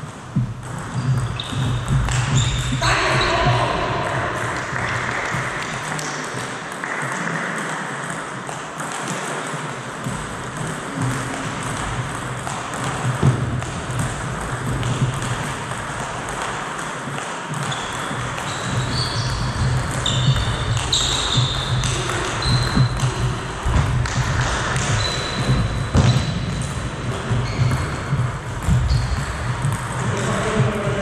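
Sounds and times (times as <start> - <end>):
shoes squeaking on wooden floor: 0.0 - 6.5, 17.5 - 30.8
sports hall background noise: 0.0 - 31.0.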